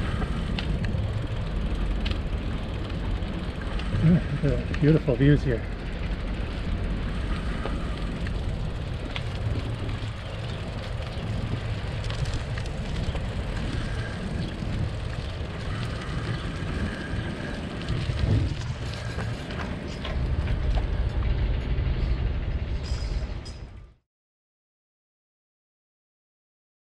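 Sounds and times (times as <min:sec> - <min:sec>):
faint ticks: 0:00.0 - 0:04.9, 0:06.0 - 0:21.4
wind rumbling over microphone: 0:00.0 - 0:23.9
bicycle tyres rolling on pavement: 0:00.0 - 0:24.0.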